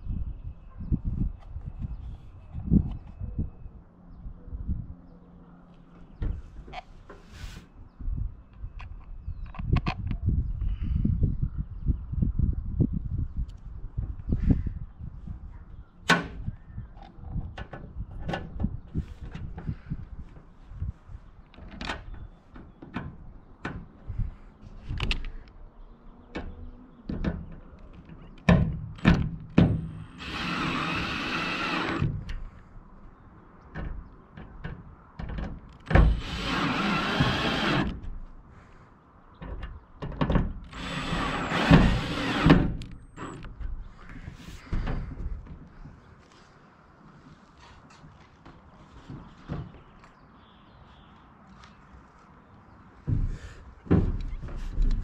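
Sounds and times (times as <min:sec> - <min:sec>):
cordless drill running: 0:29.8 - 0:32.0, 0:36.1 - 0:37.9, 0:40.7 - 0:43.4.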